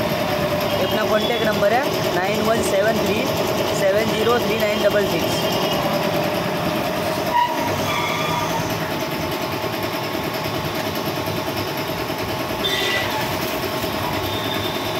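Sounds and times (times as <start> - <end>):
air compressor running: 0.0 - 14.9.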